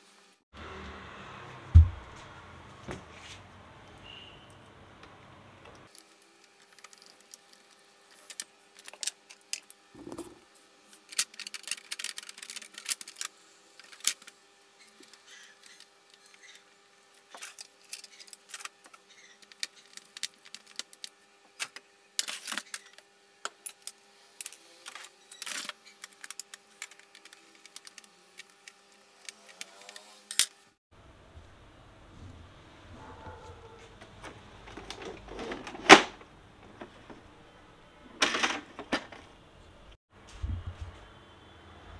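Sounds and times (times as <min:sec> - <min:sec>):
plastic parts clicking and clattering: 0:11.0 - 0:14.3, 0:17.3 - 0:30.5, 0:34.2 - 0:37.3, 0:38.1 - 0:39.4.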